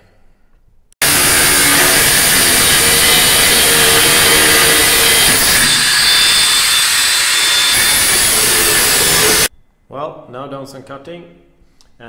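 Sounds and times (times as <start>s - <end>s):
angle grinder cutting steel: 1.0s - 9.5s.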